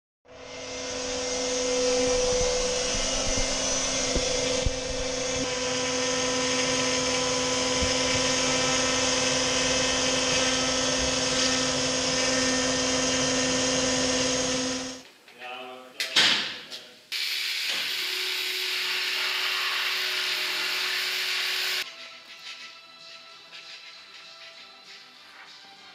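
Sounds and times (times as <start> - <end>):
router cutting plywood: 0.3 - 15.0, 17.8 - 21.8
shop vacuum running: 0.3 - 15.0, 17.2 - 21.8.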